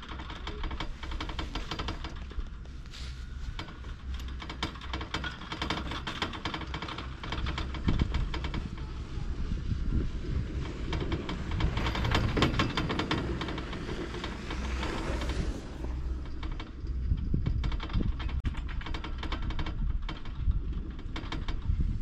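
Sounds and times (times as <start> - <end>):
chairlift clattering clicks: 0.0 - 21.8
steady low rumble: 0.0 - 22.0.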